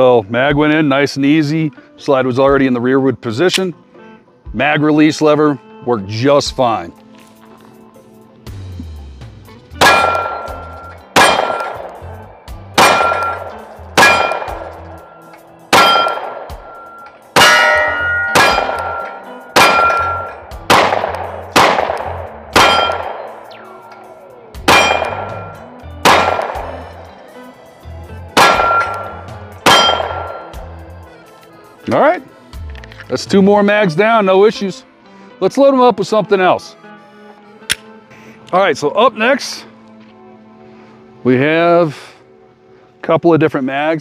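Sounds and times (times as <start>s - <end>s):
pistol shots with metallic ringing: 9.8s - 27.1s, 28.3s - 30.7s.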